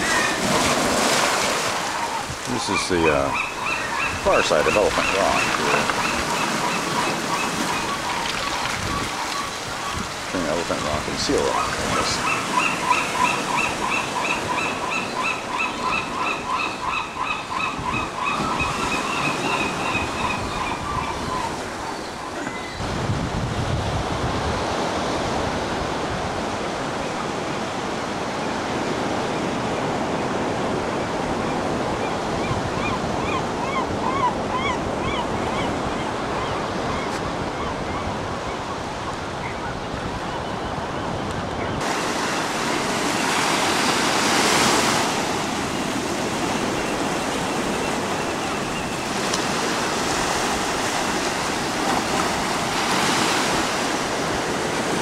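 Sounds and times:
surf rushing: 0:00.0 - 0:15.4, 0:41.8 - 0:55.0
waves breaking on sand: 0:00.0 - 0:15.4, 0:35.7 - 0:55.0
faint gull calls: 0:01.8 - 0:10.0, 0:10.8 - 0:22.8, 0:32.4 - 0:38.6.

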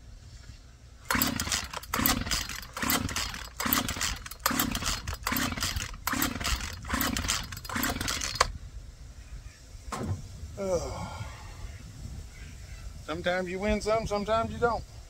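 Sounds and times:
chainsaw starter cord pulls: 0:01.1 - 0:08.5.

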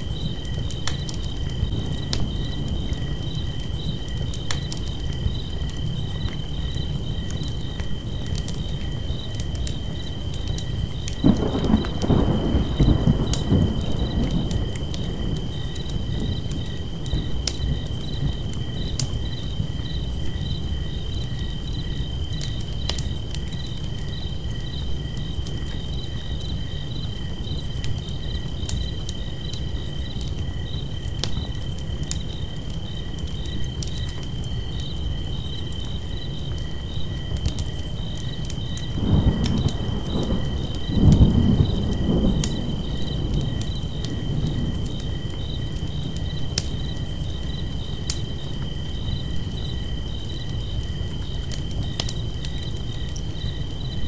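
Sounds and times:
campfire crackling: 0:00.0 - 0:54.0
crickets chirping: 0:00.0 - 0:54.0.

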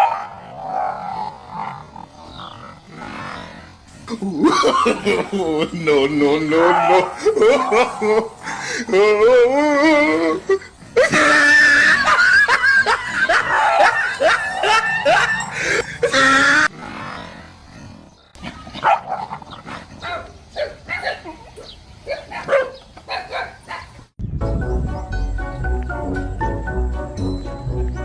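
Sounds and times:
dog barking and yelping: 0:00.0 - 0:01.2, 0:06.6 - 0:08.3, 0:13.2 - 0:15.8, 0:18.4 - 0:24.0.

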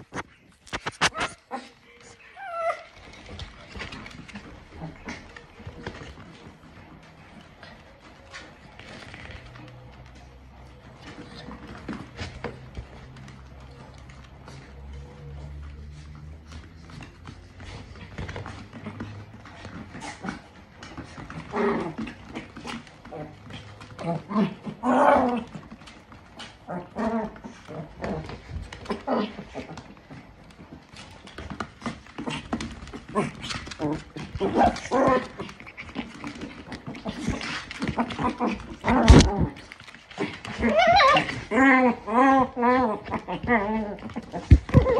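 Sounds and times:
dog claws skittering on floor: 0:00.0 - 0:44.9
dog growling: 0:17.0 - 0:30.4, 0:31.1 - 0:44.9.

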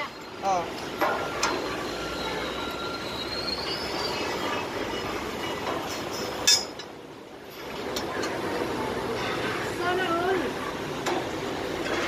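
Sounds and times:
faint high squeal: 0:01.3 - 0:05.6.

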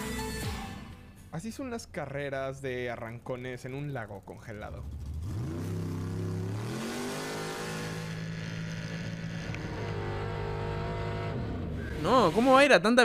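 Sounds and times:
race car engine accelerating: 0:04.7 - 0:12.6.

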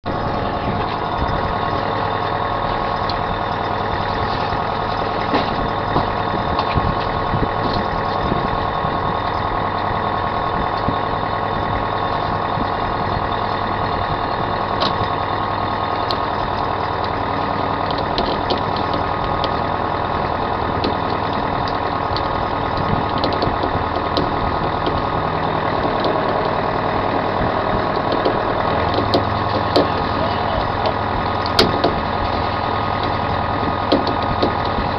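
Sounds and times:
boat engine droning: 0:00.0 - 0:34.9
gear clicking and knocking: 0:17.8 - 0:34.9.

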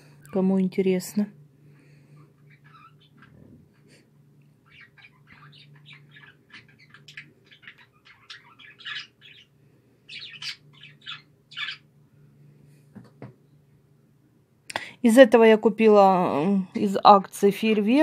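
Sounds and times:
steady low hum: 0:00.0 - 0:18.0
small bird chirping: 0:02.3 - 0:03.5, 0:04.4 - 0:11.9.

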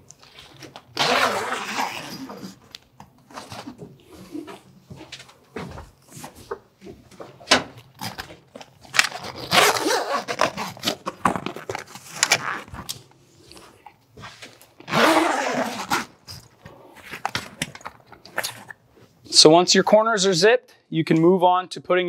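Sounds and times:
tent zippers zipping: 0:00.9 - 0:02.6, 0:09.2 - 0:11.0, 0:12.1 - 0:12.7, 0:14.8 - 0:16.4.

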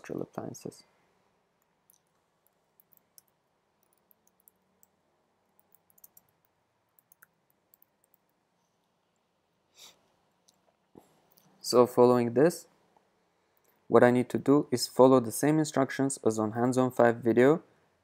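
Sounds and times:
faint keyboard typing: 0:01.6 - 0:09.3.

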